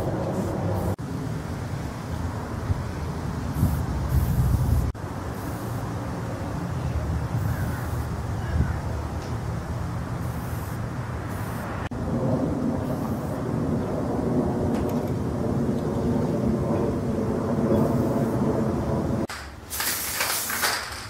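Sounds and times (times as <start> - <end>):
steady low rumble: 0.0 - 19.3
spray paint can hissing: 3.5 - 6.0, 10.2 - 11.8, 12.9 - 13.4, 19.3 - 21.0.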